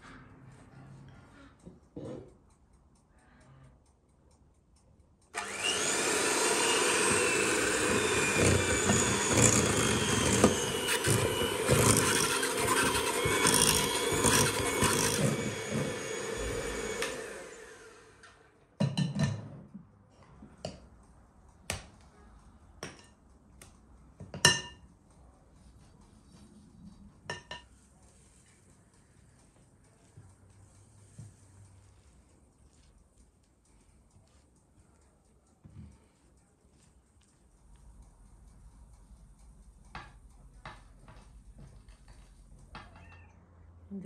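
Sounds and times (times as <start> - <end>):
electric hand mixer running: 5.4 - 18.4
spatula scraping and tapping bowl: 7.0 - 17.1, 26.9 - 28.7, 39.9 - 43.0.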